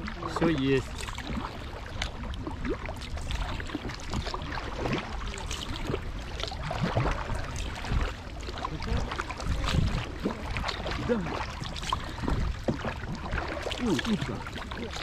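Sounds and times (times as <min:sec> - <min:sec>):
paddles dipping in water: 0:00.0 - 0:15.0
water splashing and dripping: 0:00.0 - 0:15.0.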